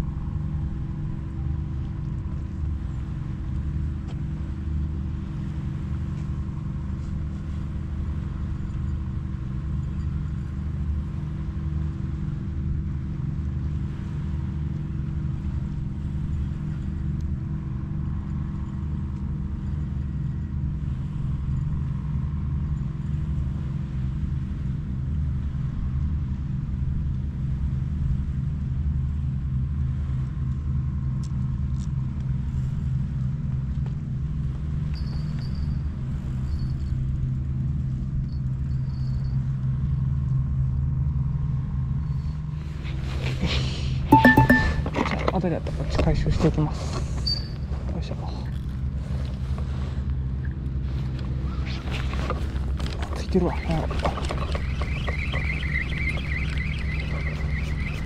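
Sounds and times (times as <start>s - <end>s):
droning hum: 0.0s - 34.8s, 48.5s - 58.0s.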